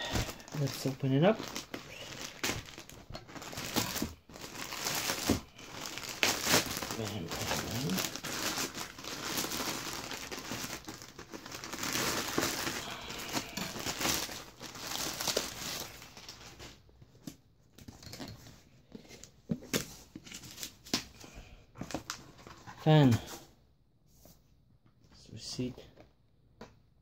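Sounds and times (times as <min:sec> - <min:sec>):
plastic mailer bag crinkling and tearing: 0:00.0 - 0:16.6.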